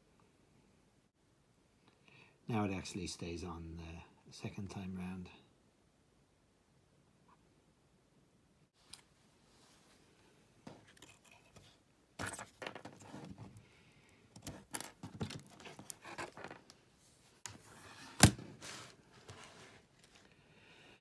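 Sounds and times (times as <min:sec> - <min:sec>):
cable handling clicks and rustles: 0:10.7 - 0:13.6, 0:14.3 - 0:16.8.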